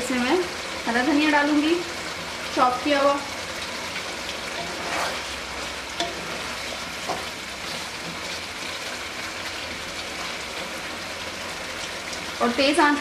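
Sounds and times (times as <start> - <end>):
curry sizzling and bubbling: 0.0 - 13.0
spatula stirring: 3.3 - 12.2.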